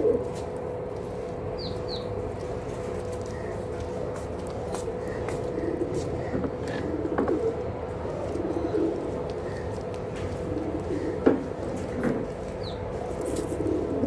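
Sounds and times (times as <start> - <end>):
pigeons cooing: 0.0 - 0.7, 1.4 - 14.0.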